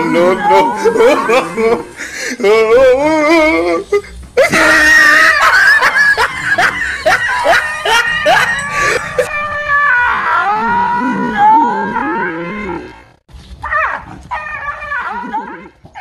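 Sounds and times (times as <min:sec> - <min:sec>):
dog crying: 0:04.4 - 0:12.2.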